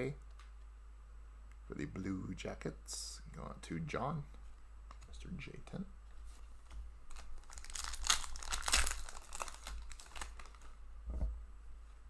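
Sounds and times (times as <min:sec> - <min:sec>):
wrapper crinkling: 0:07.1 - 0:10.8.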